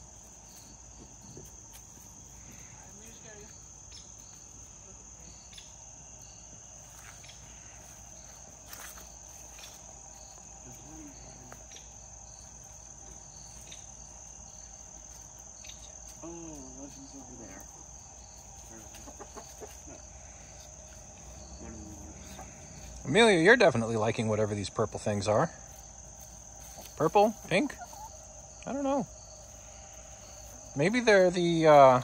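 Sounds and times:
crickets trilling: 0:00.0 - 0:32.0
chickens clucking: 0:11.5 - 0:23.5, 0:25.7 - 0:32.0.

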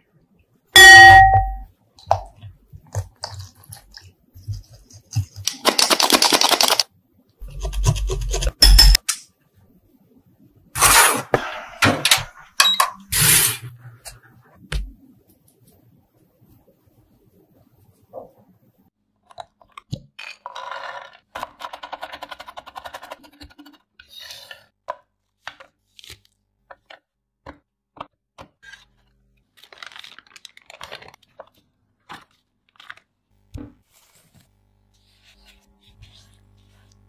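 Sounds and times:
wrapper paper and foil crinkling: 0:05.4 - 0:06.8, 0:29.5 - 0:33.2.

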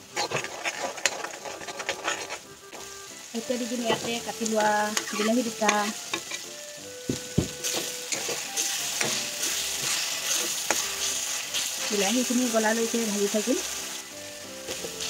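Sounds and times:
ladle scraping pan: 0:00.0 - 0:02.9, 0:03.8 - 0:06.5, 0:07.6 - 0:12.0
food sizzling in oil: 0:00.0 - 0:15.0
ladle knocking against pan: 0:07.1 - 0:08.2.

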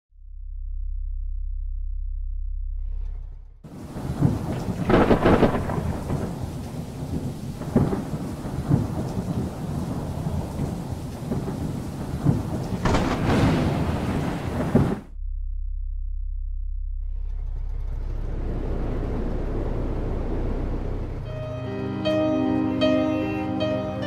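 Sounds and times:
steady rain: 0:03.7 - 0:15.1, 0:18.2 - 0:22.2
sharp thunder clap: 0:03.7 - 0:15.2
thunder rolling: 0:03.7 - 0:15.2, 0:17.4 - 0:21.4.

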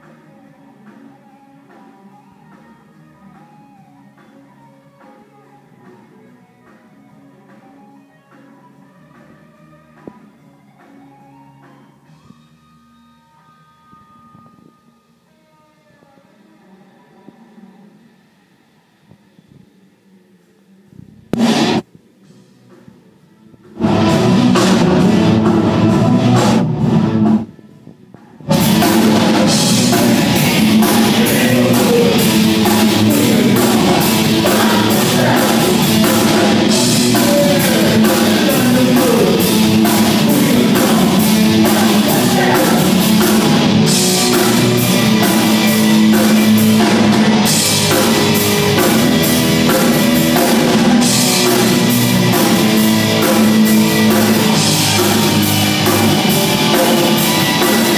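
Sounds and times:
rock band playing live: 0:21.4 - 0:21.8, 0:23.7 - 0:27.6, 0:28.4 - 0:57.9.

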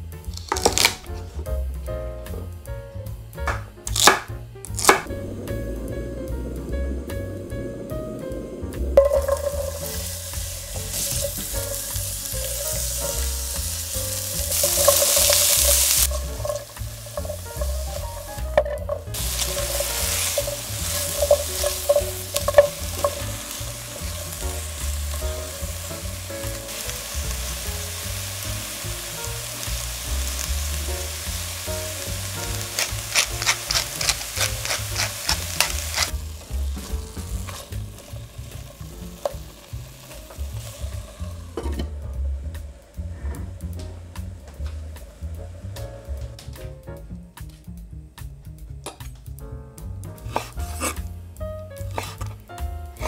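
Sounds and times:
vegetables sizzling in oil: 0:00.2 - 0:01.1, 0:03.9 - 0:07.1, 0:07.8 - 0:46.4, 0:50.2 - 0:51.0, 0:51.6 - 0:53.0
spatula scraping a pan: 0:12.5 - 0:24.5, 0:32.7 - 0:36.2, 0:50.3 - 0:51.1, 0:51.8 - 0:52.4.

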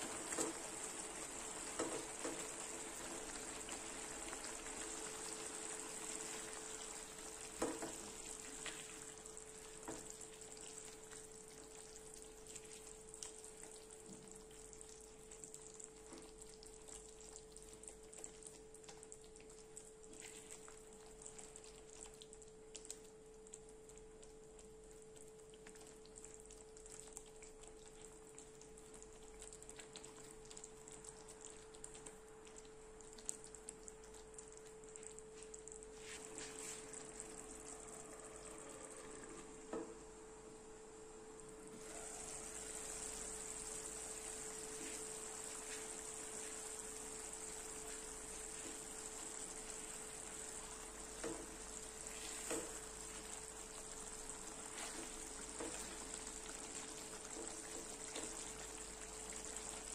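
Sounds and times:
food sizzling in frying pan: 0:00.0 - 0:17.5, 0:35.4 - 0:40.9, 0:41.6 - 0:59.9.

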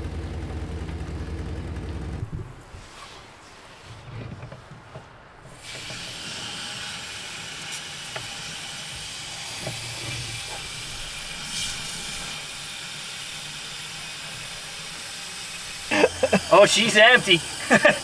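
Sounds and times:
hose water hissing into tank: 0:05.5 - 0:18.0.

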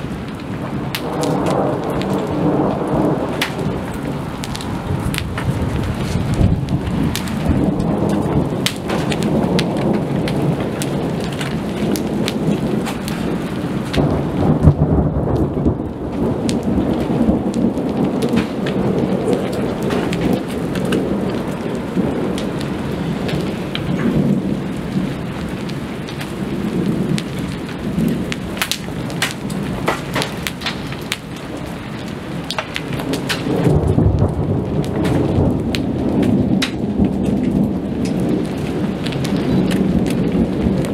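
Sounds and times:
raindrop taps: 0:00.0 - 0:40.9
rolling thunder: 0:00.0 - 0:40.9
steady rain: 0:00.0 - 0:40.9.

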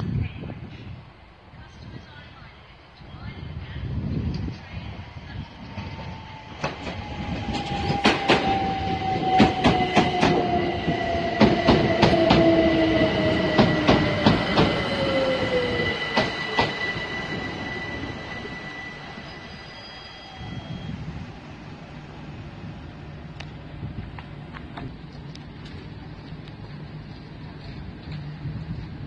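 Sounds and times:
train rumble: 0:00.0 - 0:29.0
steady high tone: 0:06.1 - 0:23.0
train wheels clacking over rail joints: 0:06.6 - 0:12.6, 0:13.4 - 0:14.8.

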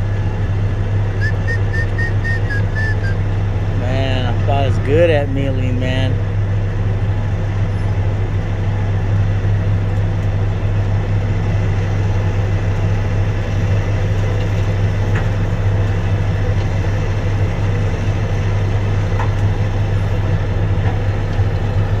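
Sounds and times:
diesel truck engine idling: 0:00.0 - 0:22.0.

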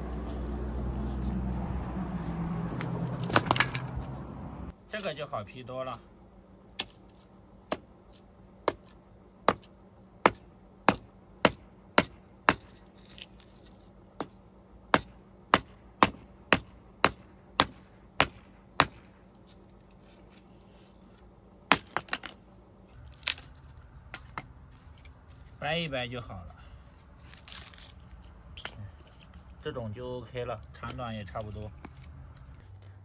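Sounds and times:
shovel chopping wood: 0:02.7 - 0:04.3, 0:06.7 - 0:19.6, 0:21.7 - 0:22.4.

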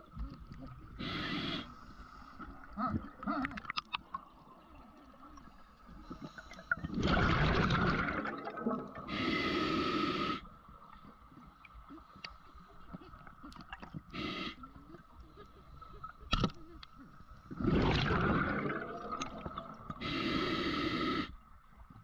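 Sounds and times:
regulator hissing inhale: 0:01.0 - 0:02.5, 0:09.0 - 0:10.5, 0:14.1 - 0:14.7, 0:20.0 - 0:21.4
exhaled bubbles rushing: 0:06.7 - 0:09.2, 0:17.5 - 0:20.0.

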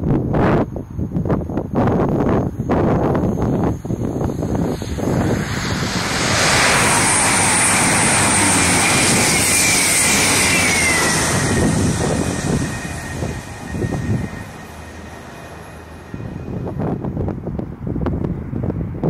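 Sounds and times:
diesel trains passing at speed: 0:00.4 - 0:19.0
whine falling in pitch: 0:02.3 - 0:17.2.

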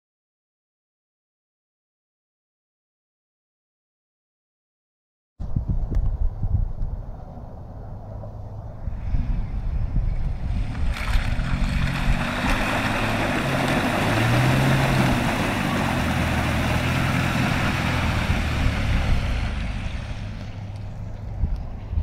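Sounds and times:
truck engine under load: 0:10.2 - 0:21.9
tyres splashing through water: 0:10.4 - 0:20.9.

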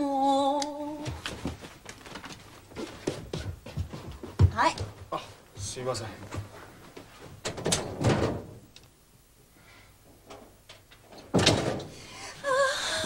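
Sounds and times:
door opening and closing: 0:07.4 - 0:08.6, 0:10.3 - 0:12.1.

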